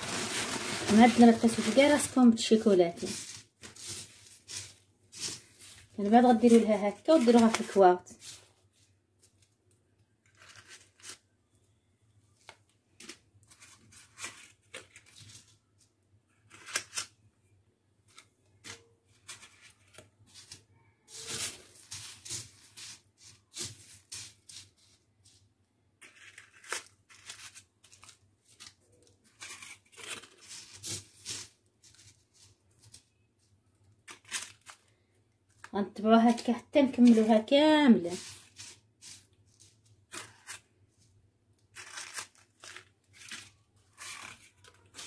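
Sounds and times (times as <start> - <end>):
dry crumbs crunching: 0.0 - 8.9, 19.2 - 25.4, 26.0 - 33.1, 35.5 - 40.7
plastic sheet crinkling: 0.0 - 9.5, 18.1 - 45.0.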